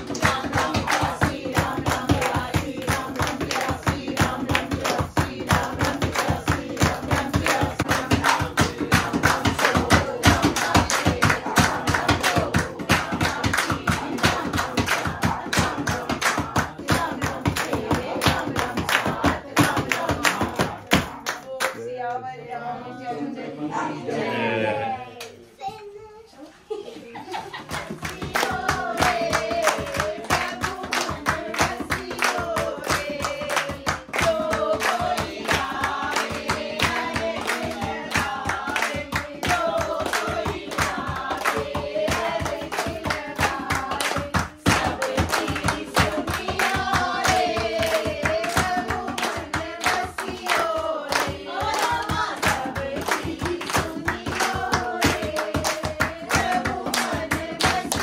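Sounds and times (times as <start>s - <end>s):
dholak drum: 0.0s - 21.3s, 27.9s - 58.0s
rhythmic hand clapping: 0.0s - 22.2s, 27.3s - 58.0s
group singing devotional song: 0.0s - 25.4s, 26.8s - 58.0s.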